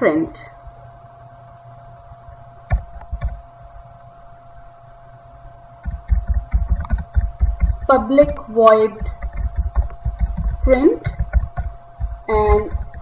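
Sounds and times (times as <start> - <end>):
faint steady hum: 0.0 - 13.0
keyboard typing: 2.7 - 3.4, 5.8 - 13.0.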